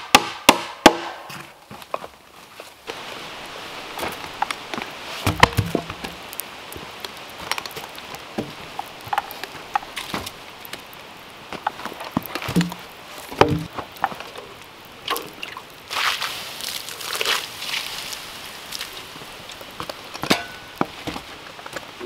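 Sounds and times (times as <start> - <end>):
wood fire crackling and popping: 0.0 - 22.0
logs knocking on fire pit: 4.0 - 10.4, 11.5 - 14.3.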